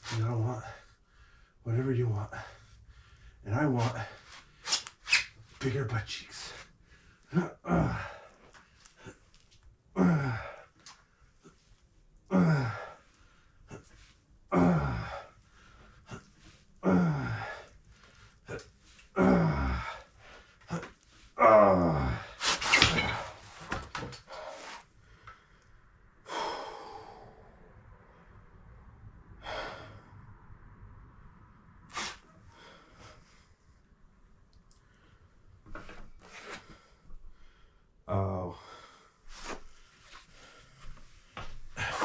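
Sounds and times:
soft breath: 0.6 - 1.6, 2.3 - 4.6, 24.3 - 30.6, 38.6 - 42.0
man grunting exhale: 7.3 - 8.4, 10.0 - 10.7, 12.3 - 13.0, 14.5 - 15.3, 16.8 - 17.7, 19.2 - 20.1, 20.7 - 22.4, 26.3 - 27.4, 29.4 - 30.1.

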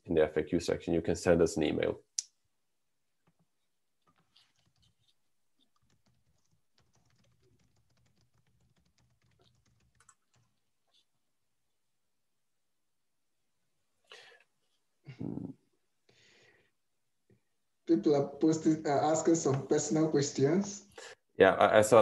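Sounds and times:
keyboard typing: 4.0 - 11.0.

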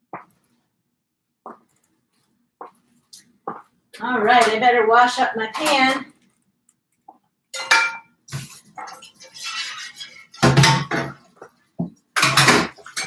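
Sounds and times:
cooking pan clanking: 7.6 - 8.2.

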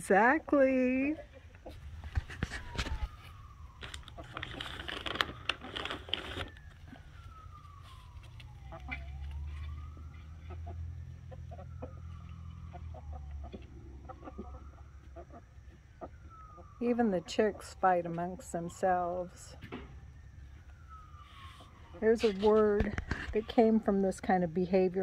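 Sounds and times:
faint siren wailing: 0.0 - 25.0
chickens clucking: 1.2 - 2.3, 10.3 - 16.8.

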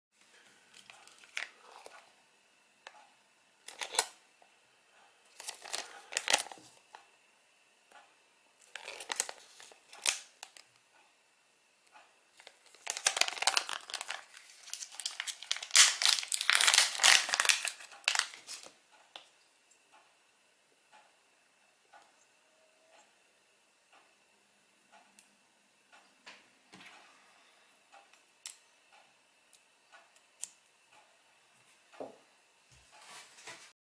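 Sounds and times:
plastic packet crinkling and tearing: 0.7 - 2.0, 3.7 - 4.2, 5.3 - 6.8, 8.6 - 10.6, 12.4 - 18.7.

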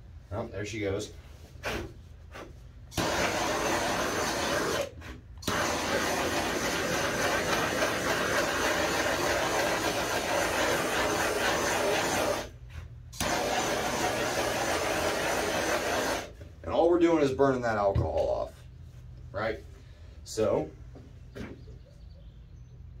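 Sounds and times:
gas torch hissing: 2.9 - 16.4.

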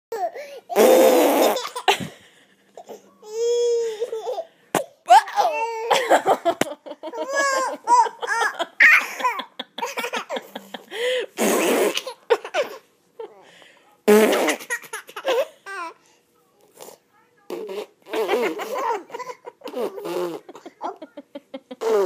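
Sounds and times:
blown raspberry: 0.8 - 1.6, 11.4 - 12.1, 14.1 - 14.7, 19.7 - 20.6, 21.8 - 22.0
toddler boy laughing: 5.1 - 10.9, 18.1 - 22.0.

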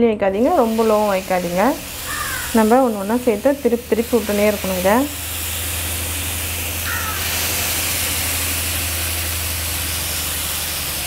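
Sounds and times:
meat sizzling in oil: 0.5 - 11.0.

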